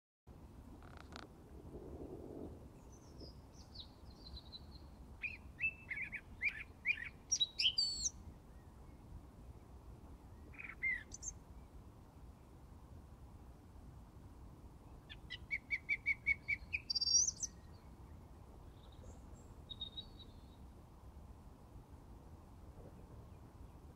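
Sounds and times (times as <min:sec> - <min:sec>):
songbird singing: 0:02.7 - 0:12.6, 0:14.8 - 0:20.8, 0:23.0 - 0:23.9.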